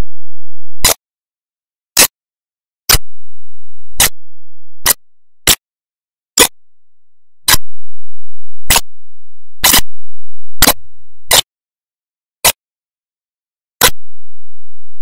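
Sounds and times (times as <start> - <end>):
sharp clicks: 8.7 - 8.9, 13.8 - 14.1.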